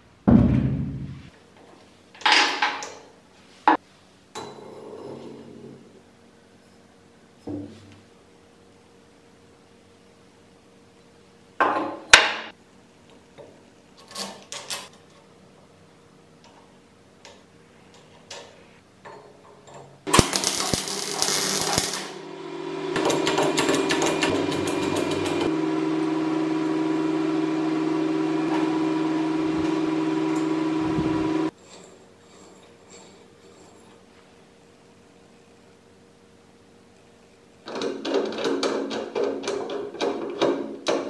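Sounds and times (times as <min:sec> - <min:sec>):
welding arc buzzing: 0:20.1 - 0:31.6.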